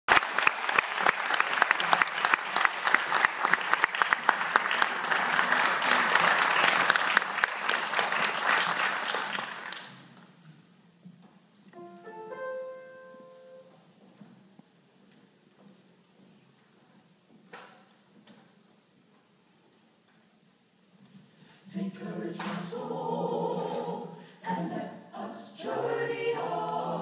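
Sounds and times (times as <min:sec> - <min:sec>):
audience applauding: 0:00.1 - 0:10.1
piano notes and chord: 0:11.8 - 0:13.8.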